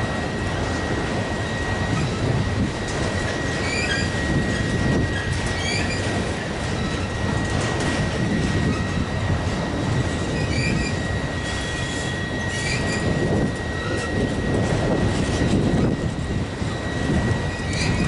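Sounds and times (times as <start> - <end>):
train wheels rumbling on rails: 0.0 - 18.0
high-pitched wheel squeal: 3.4 - 6.1, 10.3 - 14.4, 16.8 - 18.0
short wheel squeaks: 3.6 - 6.1, 10.4 - 14.2, 17.5 - 18.0.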